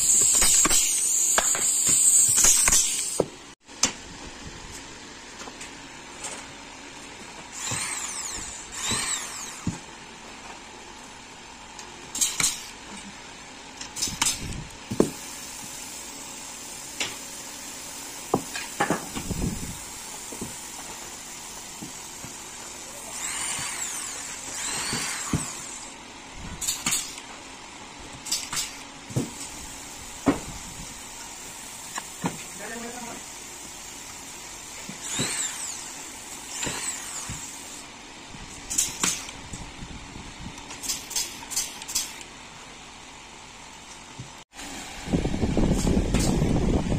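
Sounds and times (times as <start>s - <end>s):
power drill spinning: 7.4s - 9.9s, 19.2s - 26.0s, 33.6s - 37.9s.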